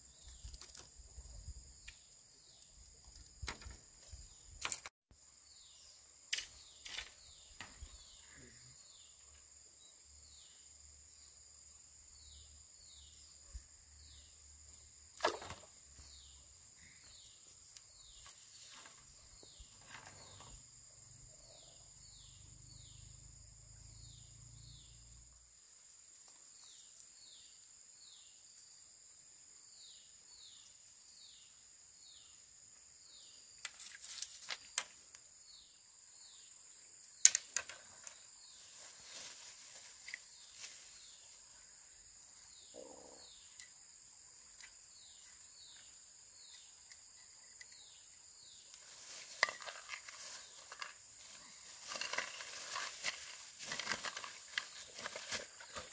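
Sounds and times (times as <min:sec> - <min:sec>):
insect falling chirp: 0:00.1 - 0:04.9, 0:15.1 - 0:21.2, 0:36.3 - 0:41.4, 0:43.2 - 0:55.9
insect high-pitched drone: 0:05.4 - 0:25.5.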